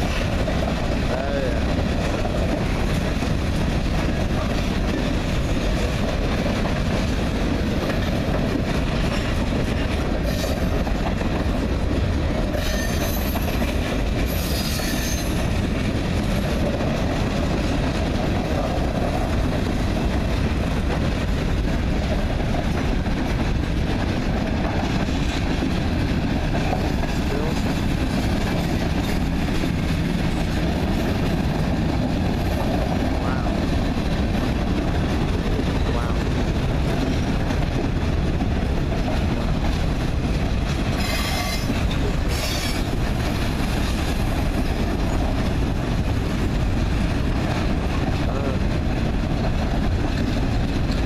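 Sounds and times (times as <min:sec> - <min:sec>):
train wheels rumbling on rails: 0:00.0 - 0:51.0
wheel squeal: 0:12.6 - 0:13.5, 0:14.3 - 0:15.4, 0:41.0 - 0:42.9.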